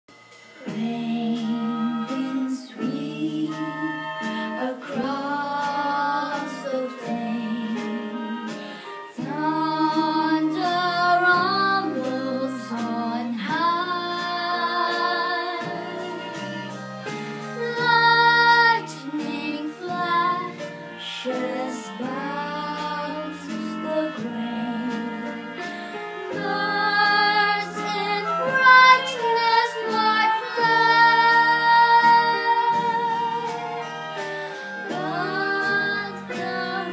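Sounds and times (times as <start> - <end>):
instrumental backing: 0.1 - 36.9
girl singing: 0.6 - 16.6, 17.6 - 25.4, 26.3 - 33.8, 34.8 - 36.9.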